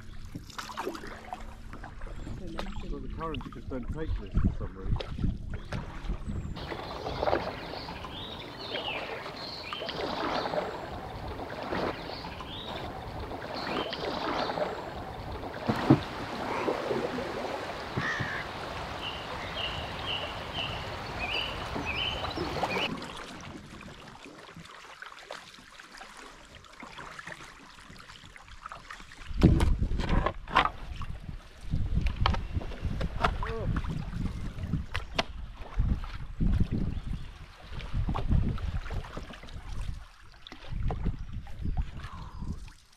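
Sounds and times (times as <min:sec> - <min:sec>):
water washing along hull: 0:00.0 - 0:42.9
birdsong: 0:05.5 - 0:22.9.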